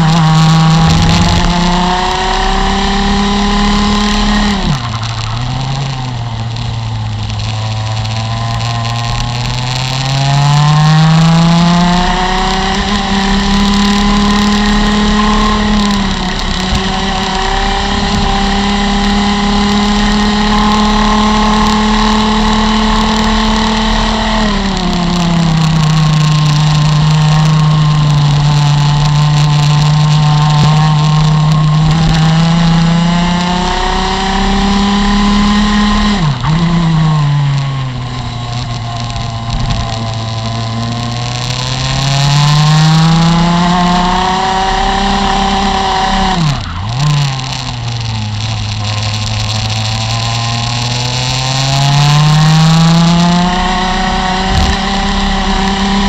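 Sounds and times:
wind rush: 0:00.0 - 0:05.4, 0:54.4 - 0:55.0
kart engine at high revs: 0:00.0 - 0:56.0.

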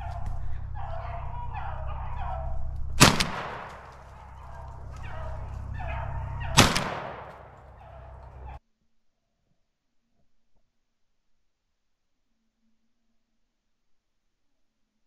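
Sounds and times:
dogs baying: 0:00.0 - 0:08.6
shotgun shots with echo: 0:03.0 - 0:08.6.

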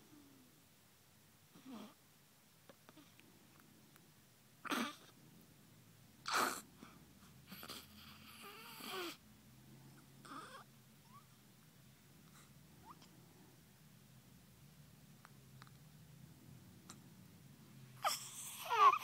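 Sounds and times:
baby breathing and grunting: 0:06.2 - 0:09.2, 0:18.0 - 0:19.0
baby whimpering: 0:10.2 - 0:11.3, 0:18.0 - 0:19.0.

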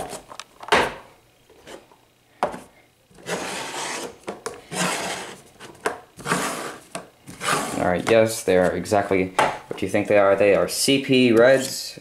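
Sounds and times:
plastic rubbing on plastic: 0:03.2 - 0:09.0.

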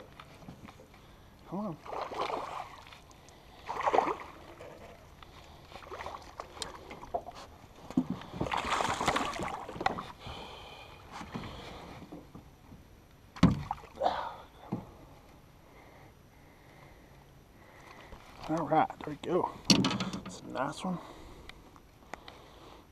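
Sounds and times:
fish splashing at water surface: 0:01.8 - 0:04.8, 0:08.4 - 0:10.0
sharp thump in boat: 0:13.4 - 0:13.8
light clicks and knocks: 0:19.6 - 0:20.4.

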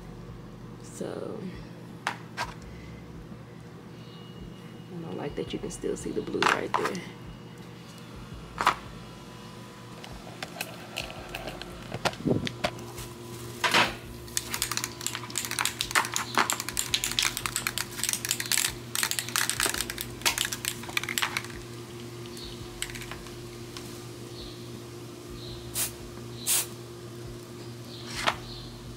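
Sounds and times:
steady low hum: 0:00.0 - 0:28.9
plastic bags rustling: 0:10.1 - 0:24.3.

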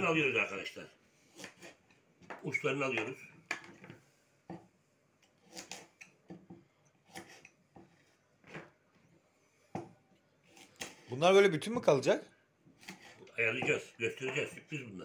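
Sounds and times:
knife cutting on wooden board: 0:01.3 - 0:01.9, 0:05.2 - 0:08.6, 0:10.4 - 0:11.1, 0:12.7 - 0:13.8.

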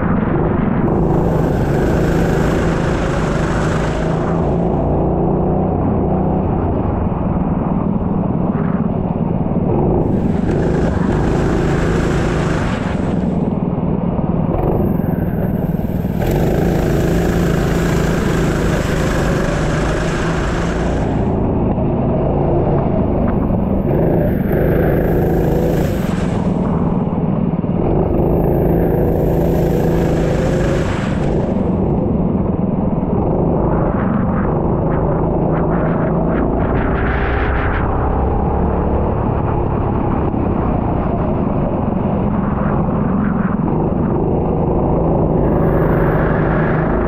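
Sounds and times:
racing engine running: 0:00.0 - 0:47.0
high rushing hiss: 0:15.0 - 0:21.4.

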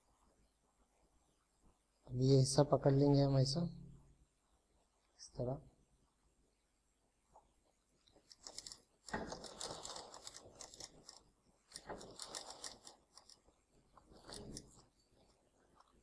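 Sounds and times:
sewing machine stitching: 0:08.5 - 0:13.4.

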